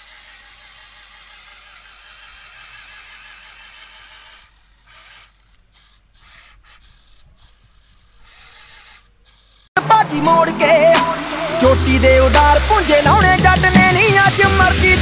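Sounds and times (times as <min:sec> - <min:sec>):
toy car motors whining: 0:00.0 - 0:09.8.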